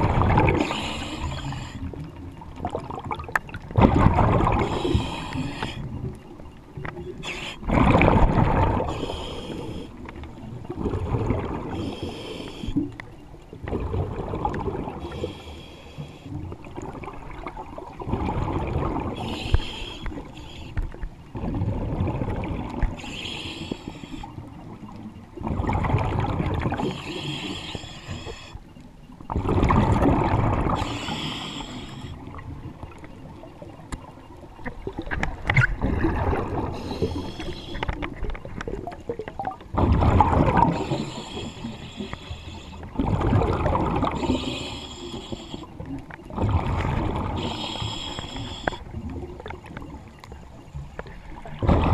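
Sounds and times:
underwater bubbles rushing: 0.0 - 51.9
regulator hiss: 19.2 - 20.8, 23.0 - 24.4, 26.9 - 28.6, 30.8 - 32.2, 36.8 - 37.9, 40.8 - 42.9, 44.2 - 45.7, 47.4 - 48.8.

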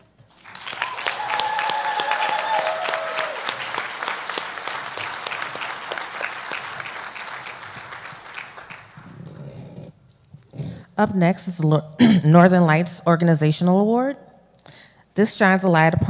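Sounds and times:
crowd clapping: 0.3 - 9.4.

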